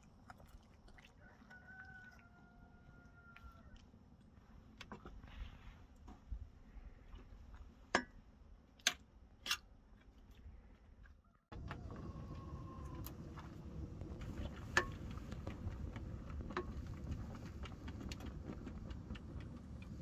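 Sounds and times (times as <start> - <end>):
steady low rumble: 11.5 - 20.0.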